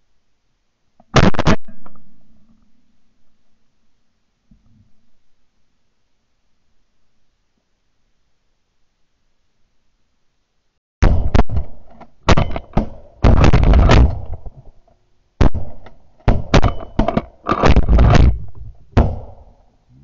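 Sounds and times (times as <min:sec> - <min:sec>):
shotgun shots: 0:01.1 - 0:01.7, 0:11.0 - 0:14.5, 0:15.4 - 0:19.6.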